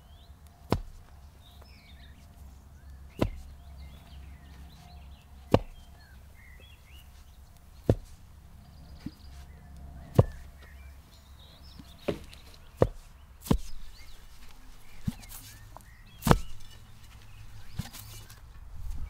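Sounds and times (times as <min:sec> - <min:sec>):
digging bar thudding into soil: 0:00.6 - 0:01.7, 0:03.1 - 0:08.3, 0:09.0 - 0:10.8, 0:11.7 - 0:18.4.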